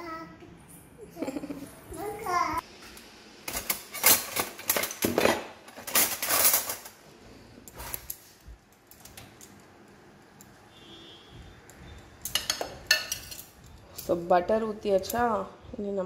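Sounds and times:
metal utensils clattering in drawer: 0:03.5 - 0:07.0, 0:12.3 - 0:13.6.

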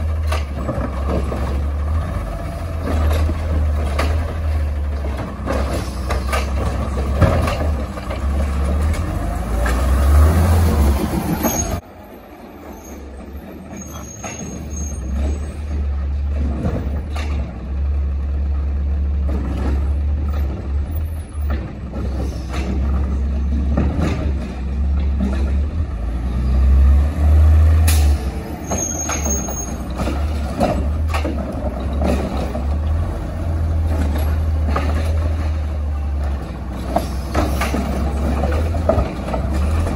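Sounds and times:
truck engine and hydraulic hum: 0:00.0 - 0:39.9
metal clanks: 0:02.7 - 0:09.9, 0:27.8 - 0:39.9.

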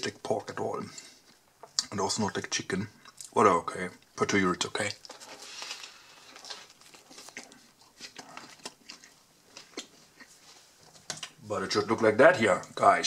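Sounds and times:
sandwich wrapper crinkling: 0:04.7 - 0:11.4
chewing: 0:04.8 - 0:11.4.

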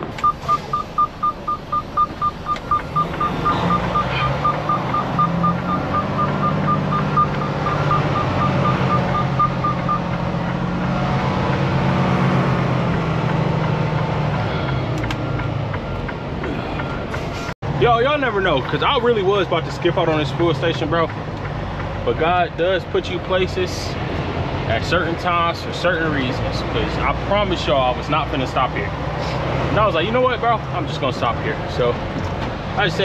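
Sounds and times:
diesel engine humming: 0:00.0 - 0:33.0
rapid electronic beeping: 0:00.2 - 0:10.2.

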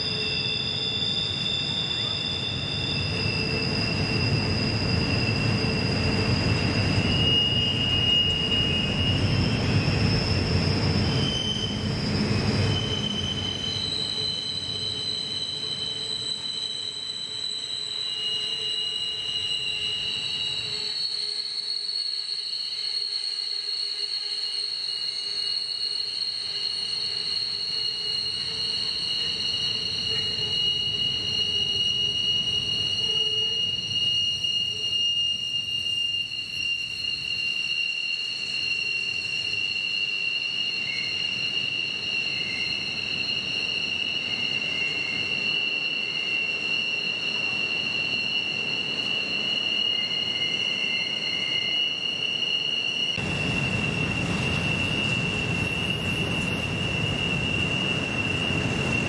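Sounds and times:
train wheels squealing: 0:00.0 - 0:59.0
rolling freight cars rumbling: 0:03.1 - 0:15.0, 0:53.2 - 0:59.0.

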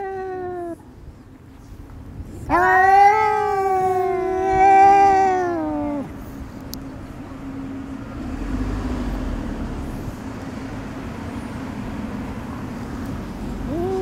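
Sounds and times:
cat growling low: 0:02.4 - 0:06.2, 0:13.6 - 0:14.0.

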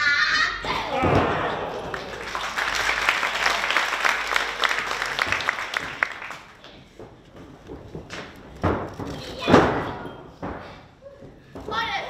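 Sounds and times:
audience clapping: 0:01.2 - 0:06.8.

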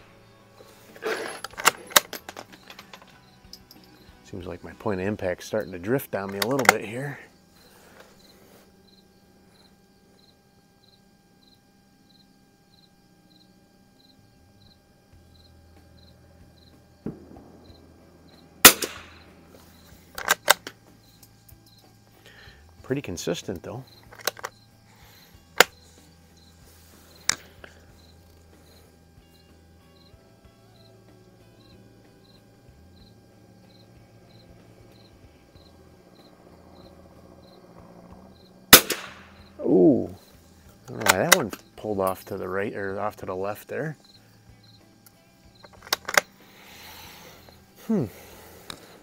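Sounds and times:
insect chirping: 0:00.0 - 0:49.0
rifle shot: 0:17.0 - 0:19.5, 0:38.7 - 0:39.4
rifle bolt clicks: 0:45.7 - 0:46.3.

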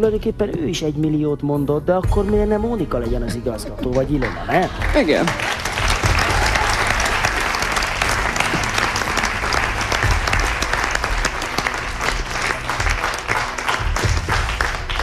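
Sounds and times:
audience applauding: 0:03.8 - 0:15.0.

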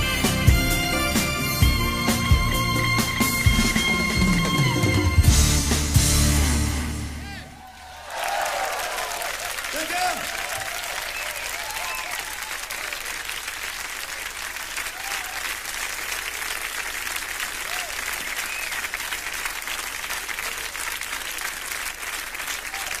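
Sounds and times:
audience applauding: 0:07.2 - 0:23.0.

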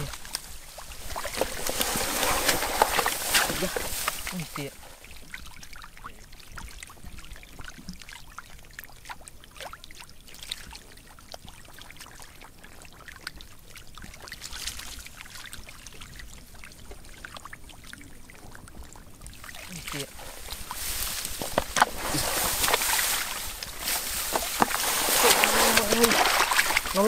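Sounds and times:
small clicks and rustles: 0:00.0 - 0:04.4, 0:20.1 - 0:27.0
shallow water splashing: 0:00.0 - 0:27.0.

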